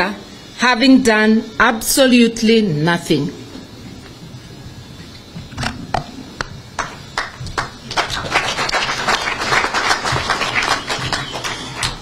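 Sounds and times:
crowd clapping: 0:06.8 - 0:12.0.

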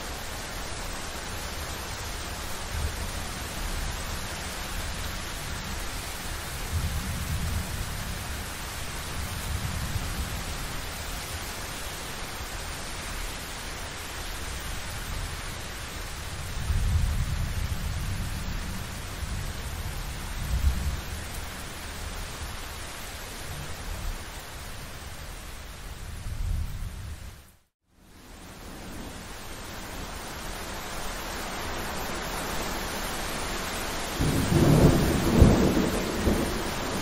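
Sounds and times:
rain hiss: 0:00.0 - 0:37.0
thunder rumbles: 0:34.2 - 0:37.0.

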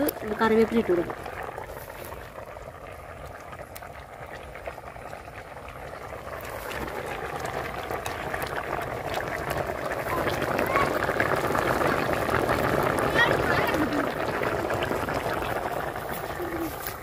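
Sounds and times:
curry bubbling in a pot: 0:00.0 - 0:17.0
wood fire: 0:00.0 - 0:17.0
steady rain falling: 0:10.0 - 0:15.0, 0:16.0 - 0:17.0.

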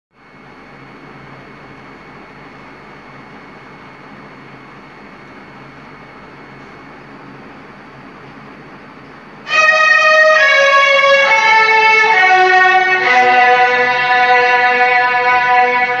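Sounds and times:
deeper accompanying notes: 0:09.5 - 0:16.0
violin playing slow notes: 0:09.5 - 0:16.0.

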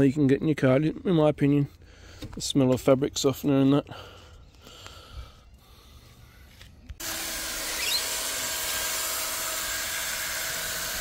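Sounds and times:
cordless drill motor whine: 0:07.0 - 0:11.0.

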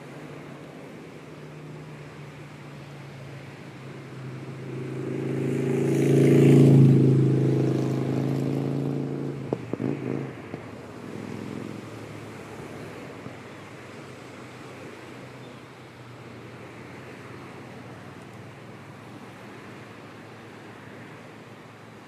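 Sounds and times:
surf washing: 0:00.0 - 0:22.0
vehicle engine passing by: 0:01.5 - 0:15.4.

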